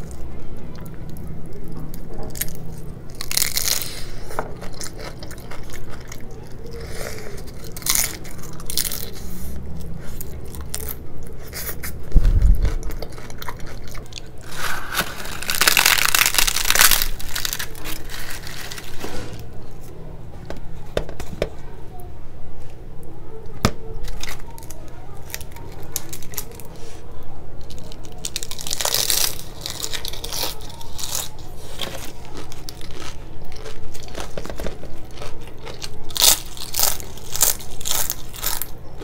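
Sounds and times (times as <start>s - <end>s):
crunching and chewing: 0.0s - 19.9s, 23.6s - 39.0s
crisp bread tearing: 2.0s - 9.3s, 12.6s - 19.5s, 24.0s - 26.7s, 27.6s - 38.8s.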